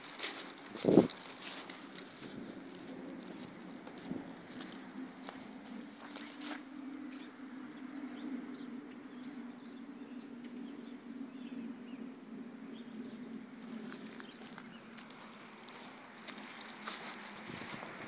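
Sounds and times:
bird chirps: 7.1s - 12.1s.

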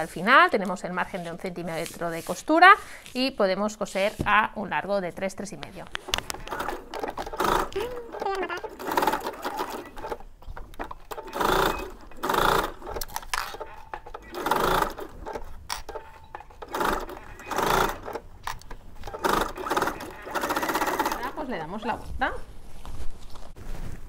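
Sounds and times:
sewing machine stitching: 6.0s - 21.6s.

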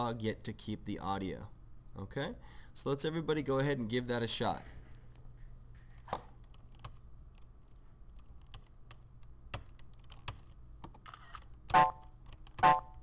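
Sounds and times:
keyboard and mouse clicks: 6.1s - 12.8s.

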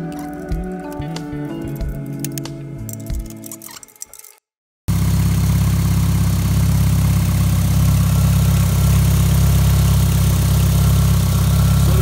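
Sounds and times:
car engine idling: 4.9s - 12.0s.

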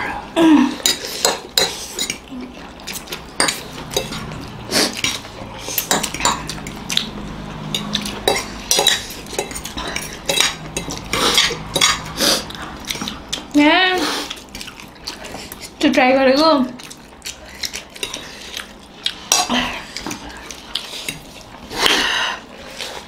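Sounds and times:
forks clinking on ceramic plates: 7.7s - 12.1s.

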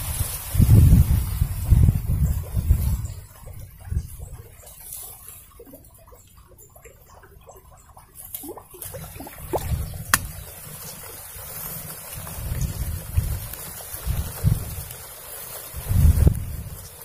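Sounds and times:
wind rumbling on microphone: 0.0s - 4.8s, 8.9s - 17.0s
lure plopping on water: 9.6s - 10.4s.

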